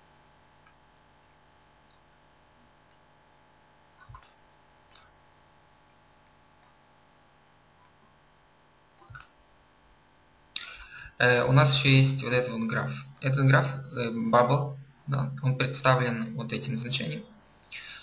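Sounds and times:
faint steady hum: 0.0s - 18.0s
computer mouse clicks: 2.8s - 3.1s, 3.9s - 5.2s, 6.2s - 8.0s, 8.8s - 9.5s.

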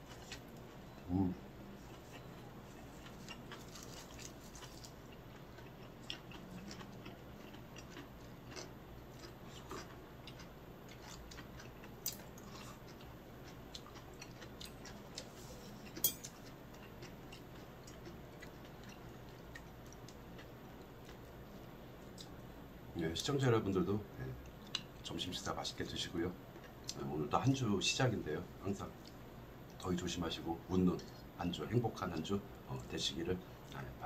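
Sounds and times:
chewing: 0.0s - 22.4s.

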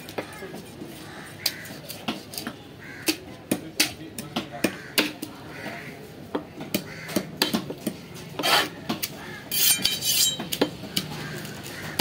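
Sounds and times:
metallic clinking and scraping: 9.5s - 10.6s.

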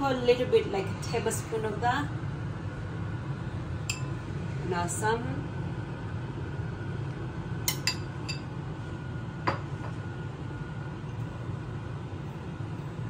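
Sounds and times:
steady low hum: 0.0s - 13.0s
spoon clinking on ceramic bowls: 7.7s - 8.4s.

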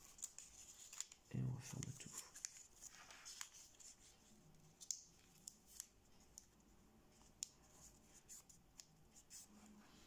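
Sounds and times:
paper crinkling: 0.0s - 6.6s.

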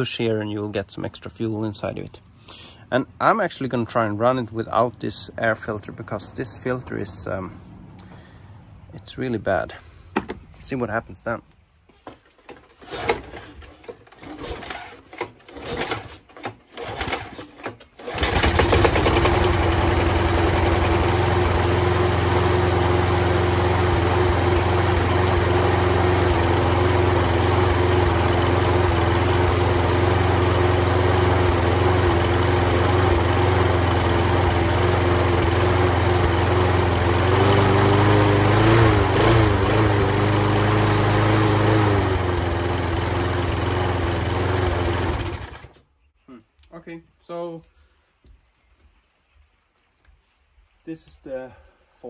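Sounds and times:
lawn mower pull-start rattling: 12.2s - 45.8s
lawn mower engine running: 12.3s - 45.8s.

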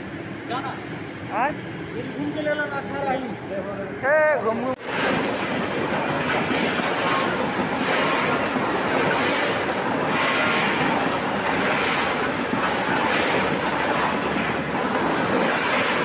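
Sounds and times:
conveyor machine clatter: 4.8s - 16.0s.

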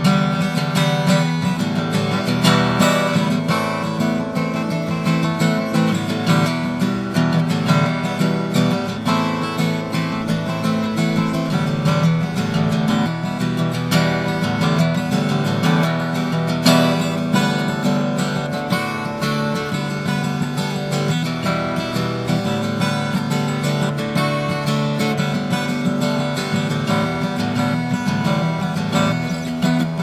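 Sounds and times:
acoustic guitar strumming: 0.0s - 30.0s.

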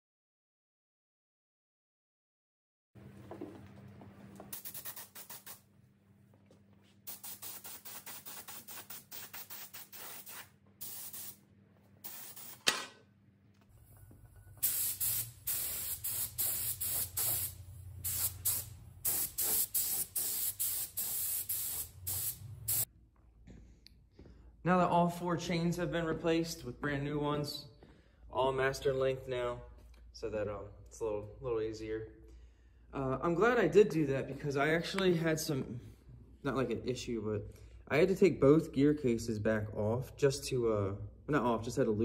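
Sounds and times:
paint spray gun hissing in bursts: 4.5s - 5.6s, 7.1s - 11.4s, 12.0s - 12.7s, 14.6s - 22.9s.

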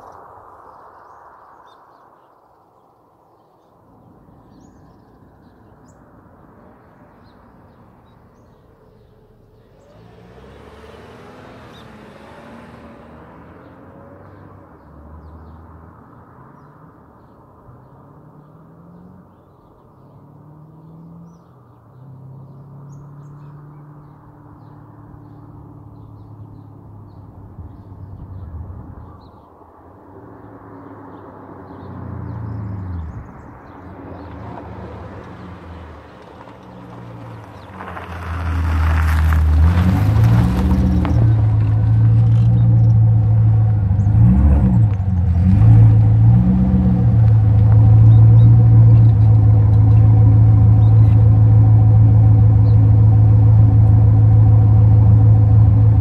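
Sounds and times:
birds chirping: 0.0s - 53.7s
distant car engine revving through gears: 9.6s - 14.4s, 38.7s - 56.0s.

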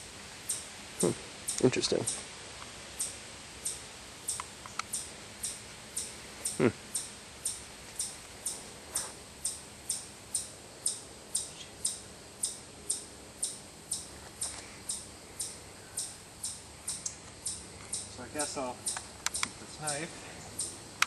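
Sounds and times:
insect chirping: 0.0s - 21.0s.

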